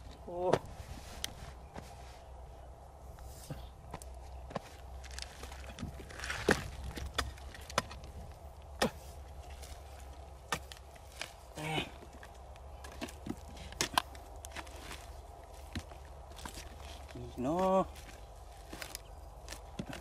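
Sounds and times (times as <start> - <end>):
digging tool striking hard clay: 8.8 - 9.1.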